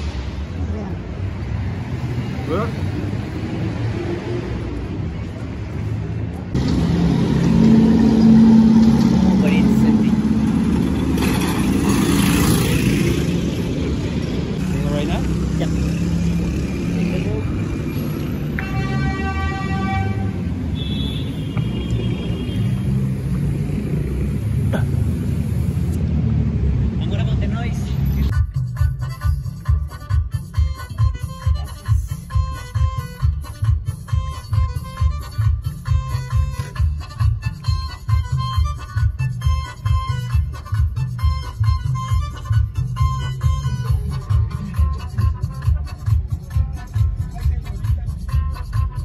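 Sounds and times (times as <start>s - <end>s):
vehicle engine droning: 0.0s - 28.4s
road traffic rumbling: 0.0s - 49.0s.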